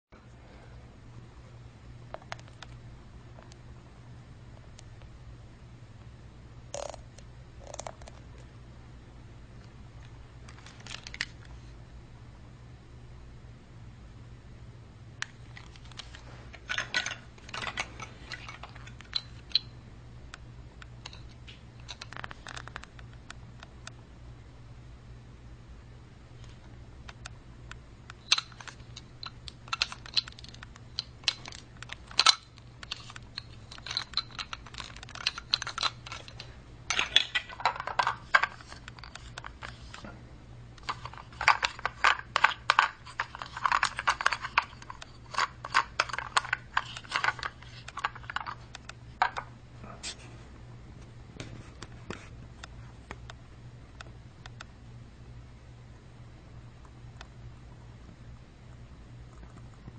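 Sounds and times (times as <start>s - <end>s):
plastic toy pieces clattering: 15.6s - 19.7s, 28.2s - 40.0s, 40.8s - 48.6s.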